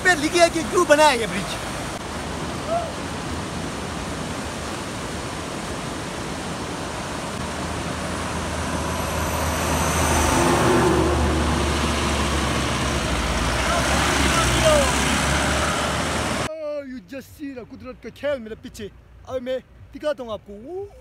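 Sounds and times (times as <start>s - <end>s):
fast river rushing: 0.0s - 16.5s
diesel engine approaching: 6.7s - 16.5s.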